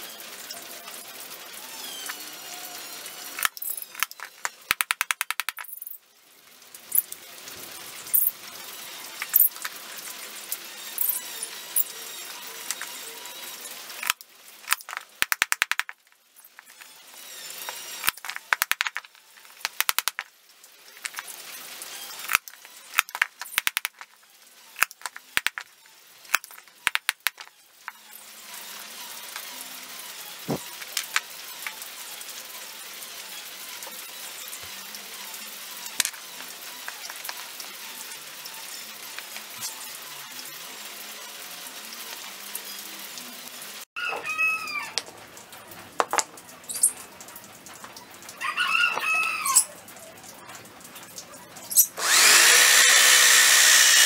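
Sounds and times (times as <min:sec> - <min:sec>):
hand tool clicking on wood: 0:19.6 - 0:20.2.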